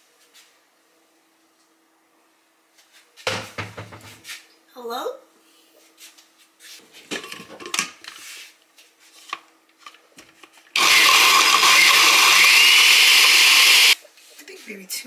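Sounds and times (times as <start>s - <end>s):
knocks and clatter of handling: 7.0s - 8.2s
electric blender running: 10.8s - 14.0s.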